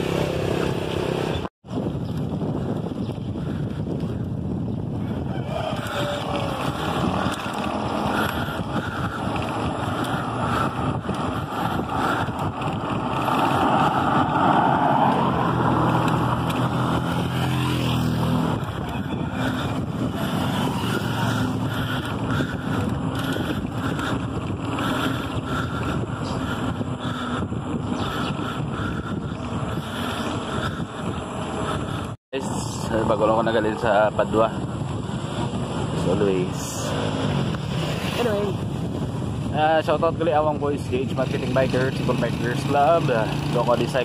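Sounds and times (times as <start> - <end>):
wind on microphone: 0.0 - 44.0
car passing by: 13.2 - 18.5.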